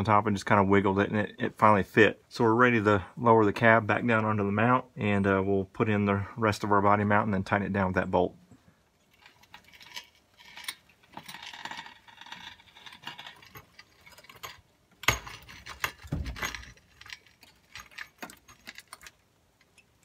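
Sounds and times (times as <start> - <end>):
metal tools clinking: 9.1 - 20.0
heavy clunks: 15.0 - 16.8.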